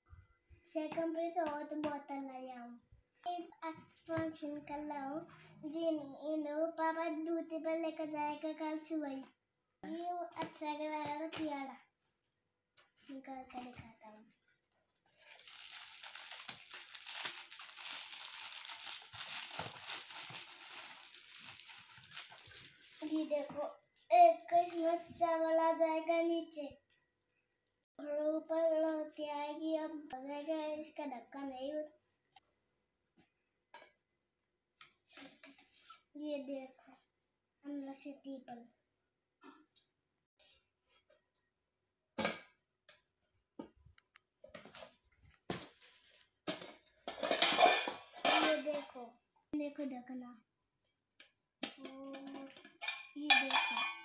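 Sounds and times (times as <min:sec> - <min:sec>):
bubble wrap crinkling: 0:15.2 - 0:25.0
steel containers clinking: 0:47.1 - 0:48.7, 0:52.6 - 0:54.0.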